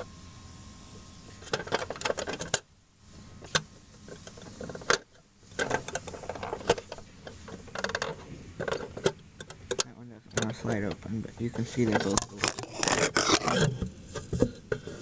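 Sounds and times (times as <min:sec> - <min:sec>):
toy sliding door clicking: 0:11.9 - 0:13.7.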